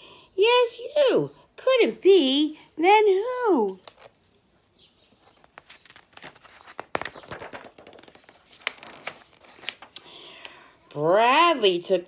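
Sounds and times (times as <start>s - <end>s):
book page turning rustle: 3.7s - 4.4s, 5.1s - 10.5s.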